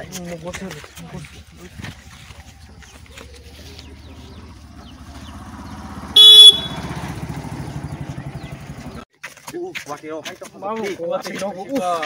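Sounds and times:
small engine puttering: 0.6s - 9.0s
horn honk: 6.0s - 7.4s.

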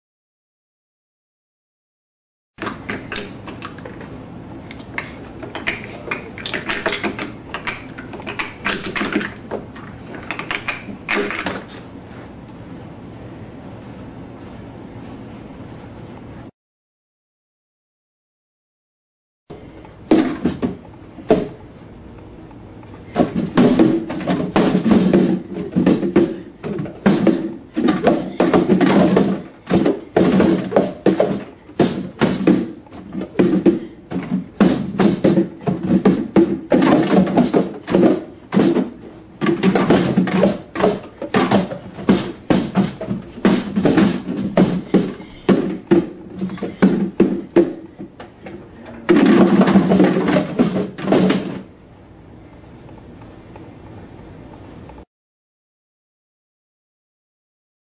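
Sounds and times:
plastic cups clattering: 5.0s - 11.8s, 23.2s - 51.6s.

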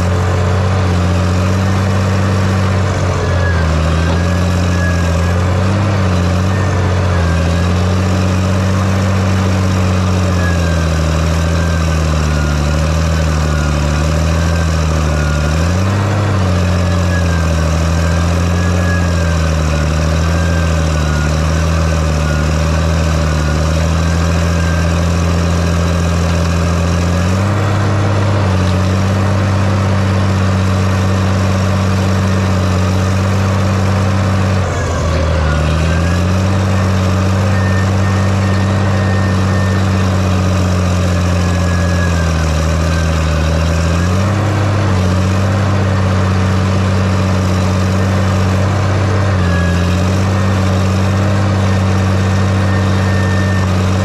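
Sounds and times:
excavator diesel engine running: 0.0s - 54.0s.

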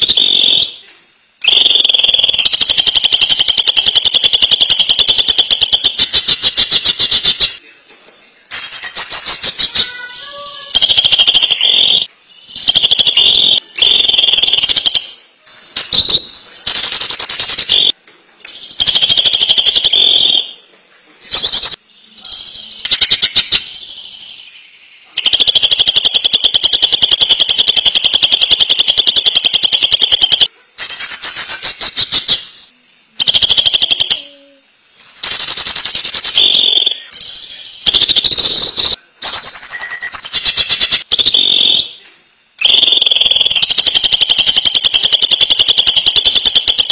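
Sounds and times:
bird singing rattling trills: 33.6s - 41.2s.

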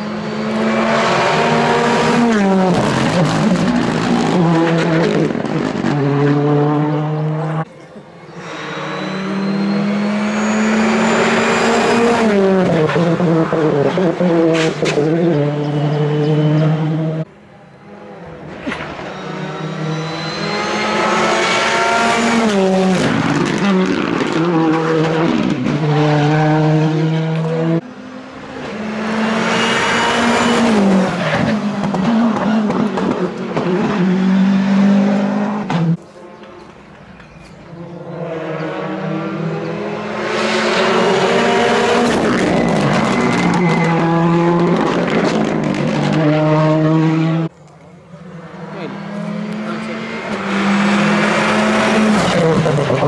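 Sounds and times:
rally car engine at full throttle: 0.0s - 36.6s, 37.6s - 53.0s
rally car rushing past: 48.2s - 53.0s.

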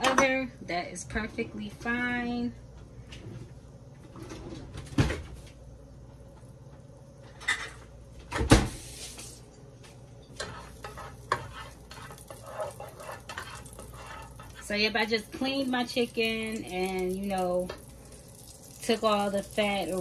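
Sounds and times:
low sizzle: 0.0s - 20.0s
spoon stirring and tapping in pot: 10.3s - 17.9s.

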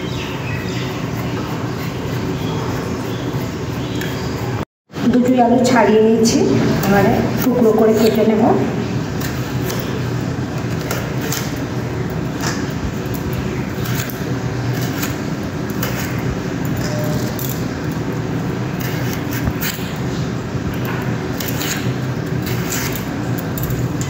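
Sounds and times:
blade cutting potatoes: 6.7s - 8.5s, 12.3s - 17.8s, 18.7s - 20.2s, 20.8s - 24.0s.

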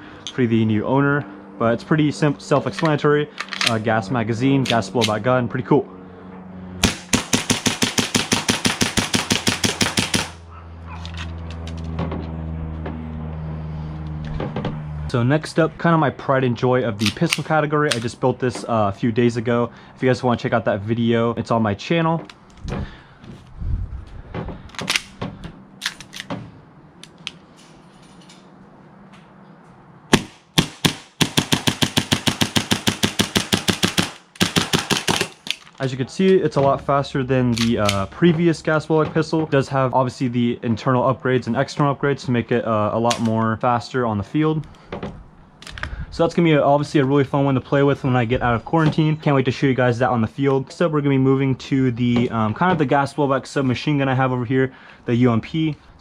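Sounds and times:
airsoft pistol rapid shots: 6.8s - 10.4s, 30.1s - 35.4s.

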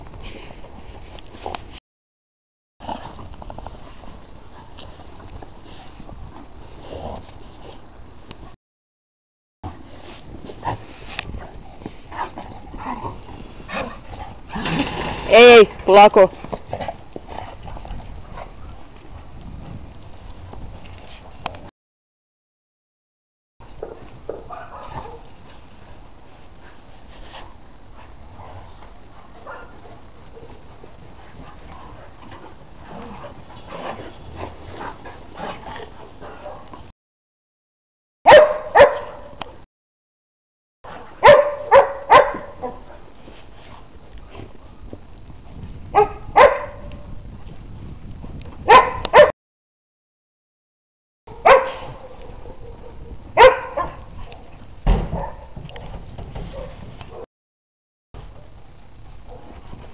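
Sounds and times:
dogs scuffling in snow: 9.8s - 14.4s, 24.5s - 36.6s, 42.9s - 44.6s
dog barking loudly: 38.3s - 39.3s, 41.2s - 42.8s, 46.0s - 46.9s, 48.7s - 49.3s, 51.3s - 54.0s, 55.1s - 55.6s.

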